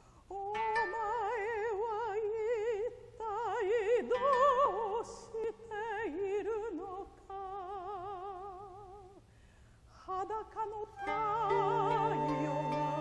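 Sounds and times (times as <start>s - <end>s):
woman singing operatically: 0.3s - 9.1s, 10.0s - 13.0s
sustained instrumental notes: 11.0s - 13.0s.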